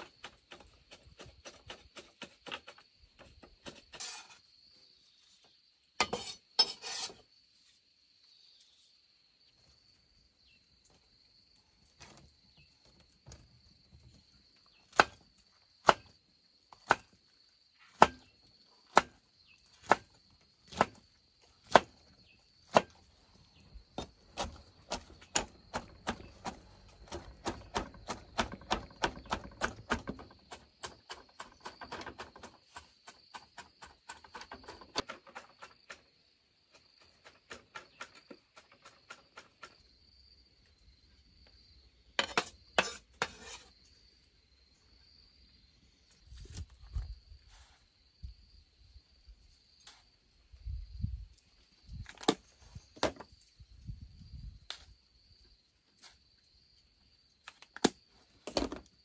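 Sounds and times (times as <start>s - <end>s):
blade chopping bamboo: 0.0s - 2.8s, 14.9s - 15.2s, 15.8s - 16.1s, 16.7s - 17.2s, 17.9s - 18.3s, 18.9s - 21.0s, 21.6s - 22.0s, 22.6s - 23.1s, 24.0s - 36.0s
insect drone: 0.0s - 59.0s.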